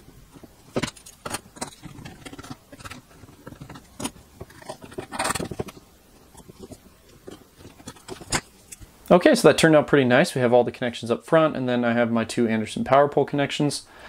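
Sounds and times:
plastic lid scraping: 0:00.3 - 0:08.8.

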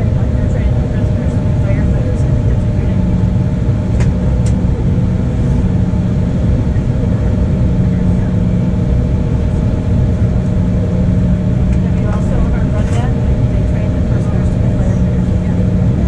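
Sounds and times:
jet cabin engine rumble: 0:00.0 - 0:16.0.

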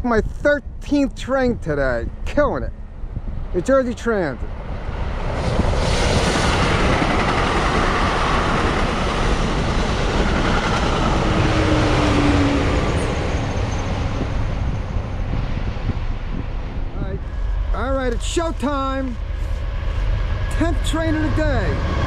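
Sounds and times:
train passing at speed: 0:04.4 - 0:22.0.

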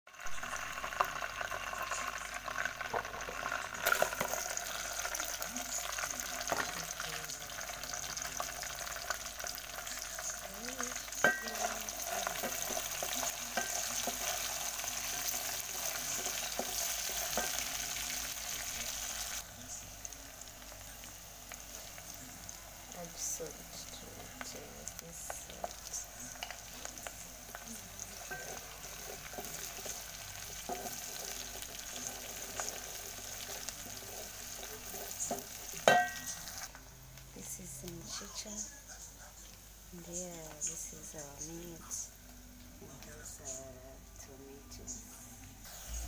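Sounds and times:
onions sizzling in hot oil: 0:00.1 - 0:46.0.

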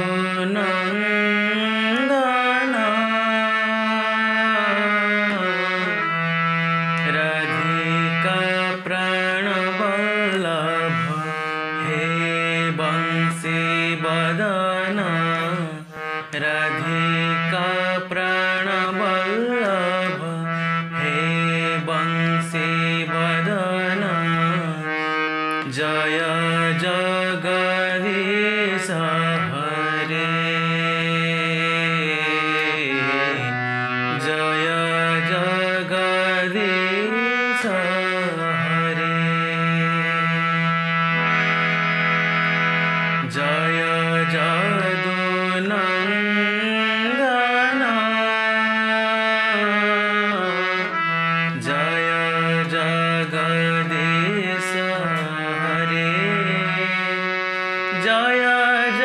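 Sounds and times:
harmonium playing a quick melody: 0:00.0 - 0:59.0.

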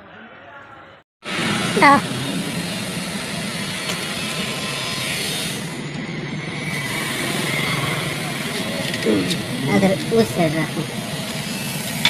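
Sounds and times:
engine droning: 0:01.2 - 0:12.0.

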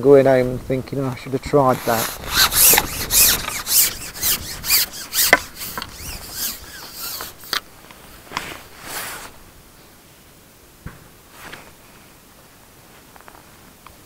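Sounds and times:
fishing pole rasping swishes: 0:01.7 - 0:09.4.

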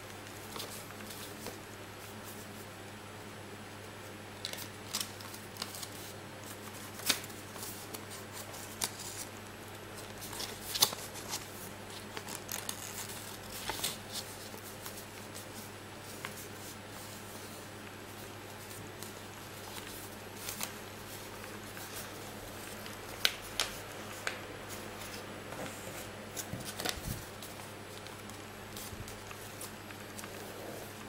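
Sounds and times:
paper being folded: 0:04.4 - 0:09.3, 0:09.9 - 0:31.0.

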